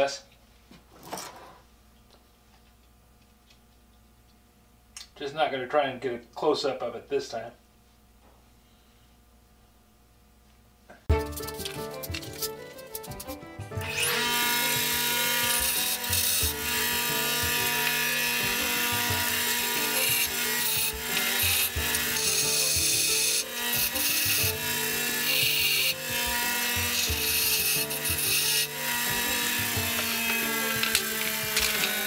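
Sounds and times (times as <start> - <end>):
bench grinder grinding bolt: 11.4 - 32.0
motor humming: 11.4 - 32.0.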